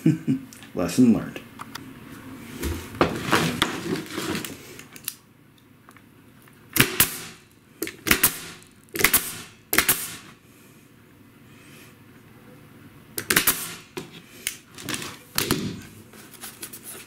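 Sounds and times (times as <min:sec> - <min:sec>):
staple gun firing into wood: 0:06.8 - 0:10.2, 0:13.2 - 0:13.8.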